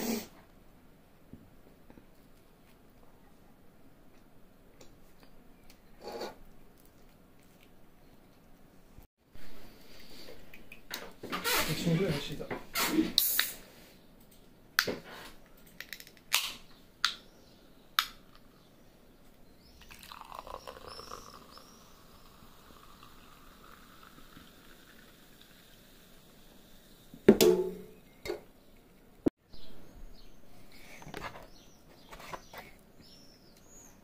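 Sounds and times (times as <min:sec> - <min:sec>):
cola fizzing in glass: 0:19.8 - 0:26.9
loud knock: 0:27.3 - 0:27.9.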